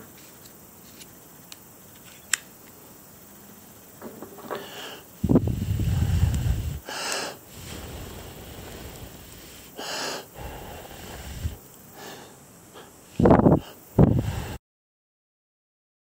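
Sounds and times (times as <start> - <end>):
person blowing puffs of breath: 4.5 - 14.6.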